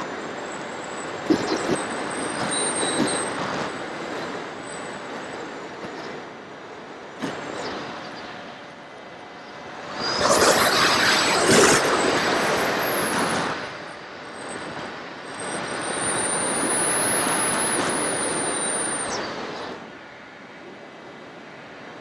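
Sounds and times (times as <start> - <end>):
electric motor and propeller whining: 0.0 - 22.0
rushing air: 9.6 - 13.9.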